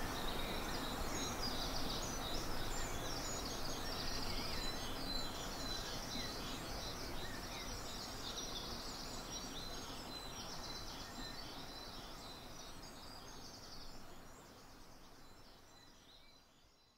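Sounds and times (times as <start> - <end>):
songbirds singing: 0.0 - 16.9.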